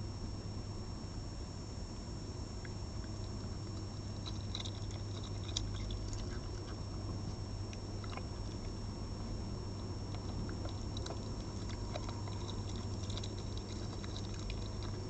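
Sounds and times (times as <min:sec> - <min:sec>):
electrical hum and hiss: 0:00.0 - 0:15.0
fox chewing wet clicks: 0:02.6 - 0:08.8, 0:09.7 - 0:15.0.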